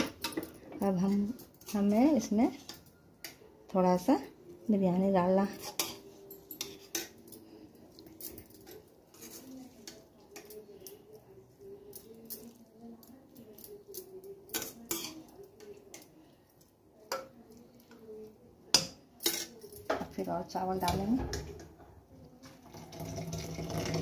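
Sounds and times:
metal spoon scraping metal pot: 5.5 - 7.2, 14.5 - 15.4.

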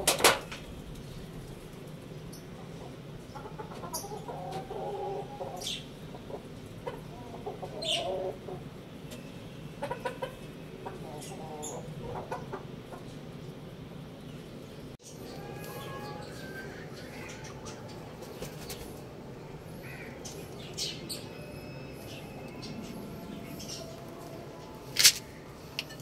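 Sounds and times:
steady background hum: 0.0 - 26.0
chickens clucking: 2.3 - 13.5, 15.0 - 21.4.

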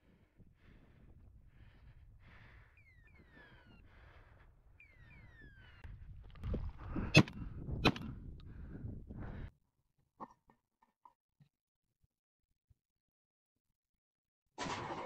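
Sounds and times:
short falling whistles: 2.7 - 3.9, 4.8 - 5.8
sharp loud cracks: 14.6 - 15.0.

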